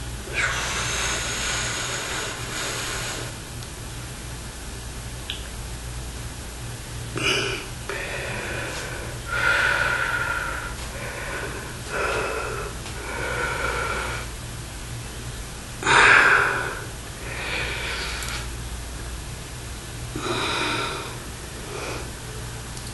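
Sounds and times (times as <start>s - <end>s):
steady low hum: 0.0s - 22.9s
man breathing out forcefully: 7.3s - 14.3s, 15.8s - 18.5s.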